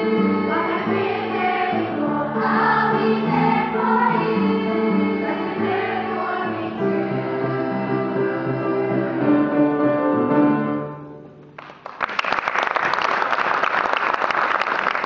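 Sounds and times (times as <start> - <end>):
children's choir singing: 0.0 - 9.8
piano accompaniment: 0.0 - 11.8
audience applause: 11.6 - 15.0.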